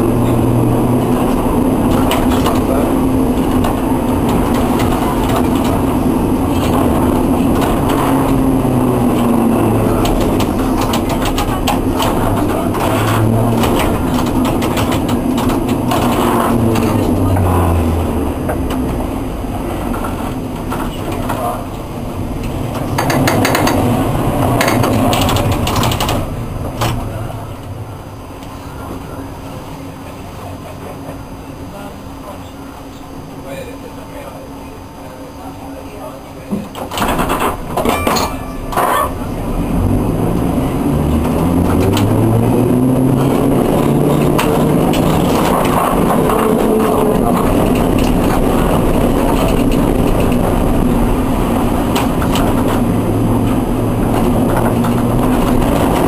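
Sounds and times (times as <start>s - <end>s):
tram wheels rumbling on rail: 0.0s - 56.0s
wheel clicks on track: 9.9s - 17.3s, 22.4s - 24.0s, 24.6s - 27.0s, 43.2s - 50.7s, 51.7s - 56.0s
scattered clicks: 10.0s - 17.2s, 22.4s - 23.9s, 24.6s - 27.0s
low hum: 37.3s - 56.0s.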